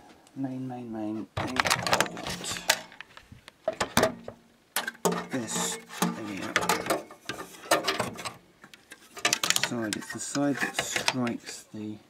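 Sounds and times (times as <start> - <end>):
clicks and rattles in computer case: 1.4 - 3.1, 3.7 - 11.4.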